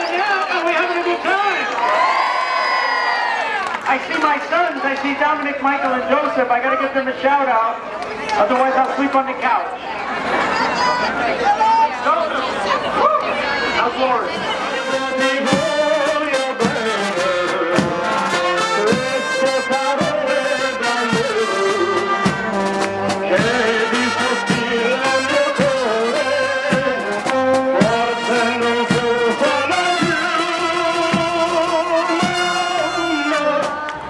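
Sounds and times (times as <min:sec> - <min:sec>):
brass band playing a march: 0:14.3 - 0:34.0
drum beat: 0:14.9 - 0:33.9.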